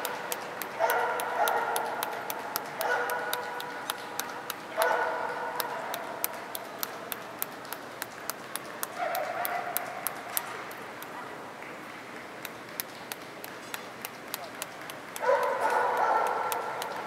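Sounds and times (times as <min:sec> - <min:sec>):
sharp clicks: 0:00.0 - 0:05.0, 0:05.6 - 0:11.2
dog barking: 0:00.8 - 0:03.7, 0:04.8 - 0:06.2, 0:09.0 - 0:10.1, 0:15.2 - 0:17.0.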